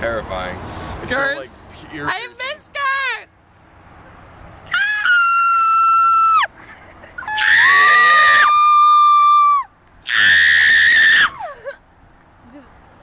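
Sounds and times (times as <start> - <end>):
person screaming: 7.3 - 11.5.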